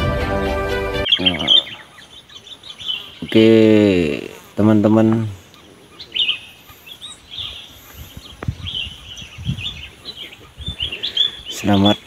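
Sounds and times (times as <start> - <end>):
small birds chirping: 1.0 - 12.0.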